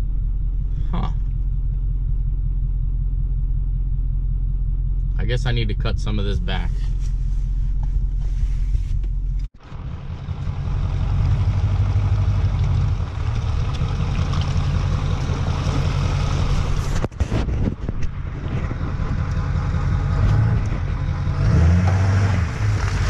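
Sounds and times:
diesel pickup engine rumbling: 0:00.0 - 0:23.0.

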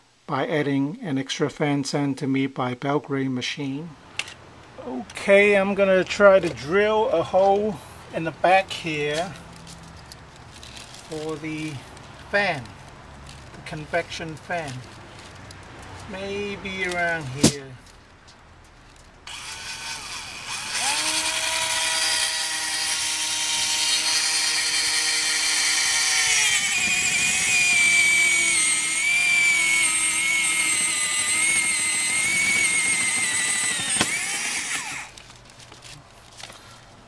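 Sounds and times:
electric drill motor whining: 0:19.3 - 0:35.2.

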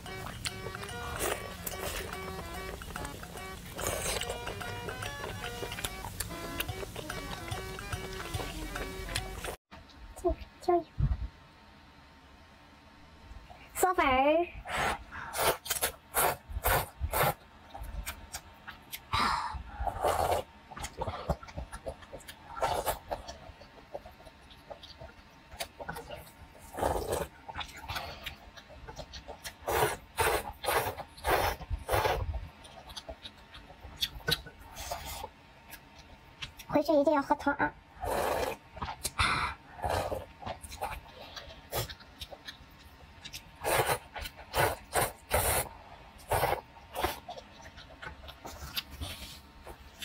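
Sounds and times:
wet chewing: 0:00.0 - 0:09.6, 0:19.8 - 0:36.7, 0:38.0 - 0:50.0
slurping noodles: 0:14.7 - 0:17.4, 0:19.8 - 0:21.5, 0:25.9 - 0:27.9, 0:29.6 - 0:32.4, 0:38.0 - 0:39.1, 0:39.7 - 0:41.9, 0:43.6 - 0:47.3.

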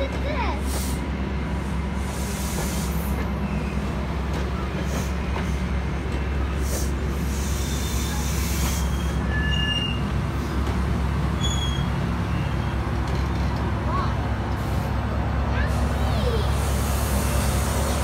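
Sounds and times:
train rumbling on rails: 0:00.0 - 0:18.0
wheel squeals: 0:07.6 - 0:10.1, 0:11.4 - 0:12.8.

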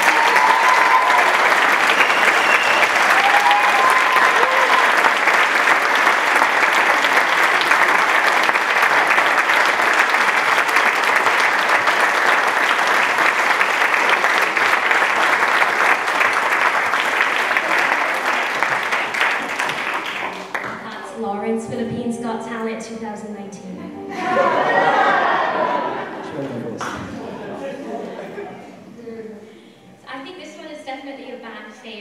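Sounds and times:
audience applauding: 0:00.0 - 0:21.2, 0:24.1 - 0:28.4.

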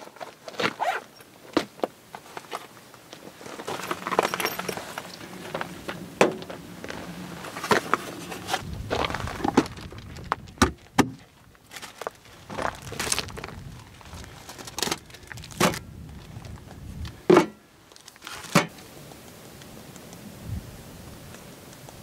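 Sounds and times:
plastic wrappers rustling: 0:11.7 - 0:15.6.

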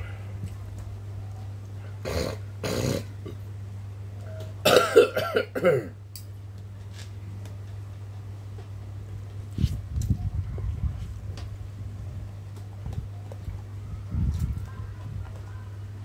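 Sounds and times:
man clearing throat: 0:02.0 - 0:03.4, 0:04.6 - 0:06.0
man coughing: 0:04.6 - 0:05.9.

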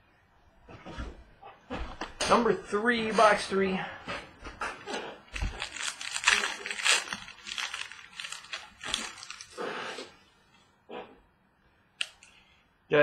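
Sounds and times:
card wrappers crinkling and tearing: 0:05.3 - 0:10.1.

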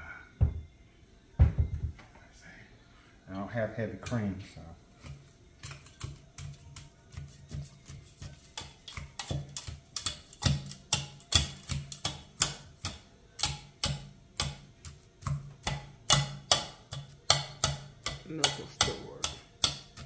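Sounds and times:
potato masher knocking in saucepan: 0:05.6 - 0:20.0.

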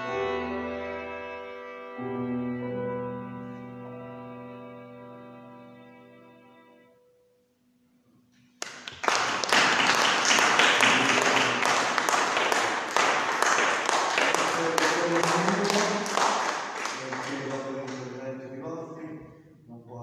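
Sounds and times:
audience applause: 0:08.6 - 0:18.2.

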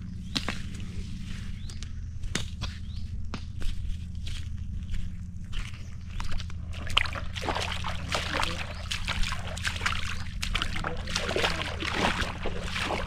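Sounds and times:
low motor-like hum: 0:00.0 - 0:13.0
shallow water sloshing and splashing: 0:05.5 - 0:13.0.

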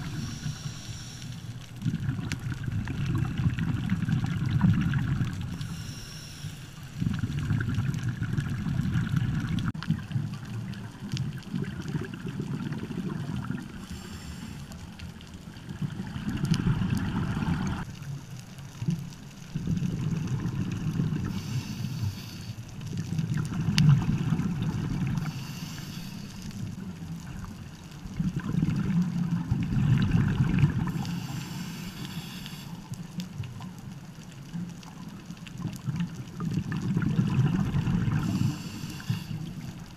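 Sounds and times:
regulator breathing underwater: 0:00.0 - 0:01.6, 0:05.5 - 0:07.1, 0:13.7 - 0:14.9, 0:21.2 - 0:22.6, 0:25.2 - 0:26.7, 0:30.9 - 0:32.9, 0:38.0 - 0:39.8
exhaled air bubbling: 0:00.0 - 0:39.9.

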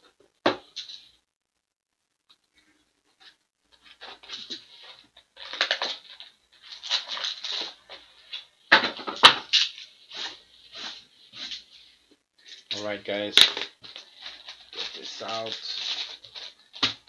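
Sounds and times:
packaging rustling and crinkling: 0:03.2 - 0:11.7, 0:12.4 - 0:17.0.

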